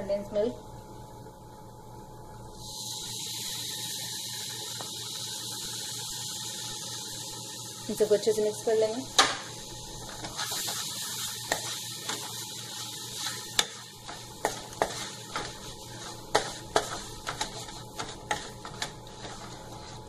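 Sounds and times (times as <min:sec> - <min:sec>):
spatula stirring and scraping mix: 0:09.9 - 0:20.0
spatula knocking against pan: 0:16.3 - 0:19.0.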